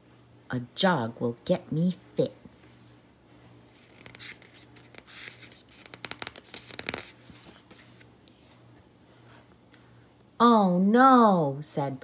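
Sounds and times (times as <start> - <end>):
paper crinkling: 2.6 - 8.8
paper page rustling: 2.6 - 8.8.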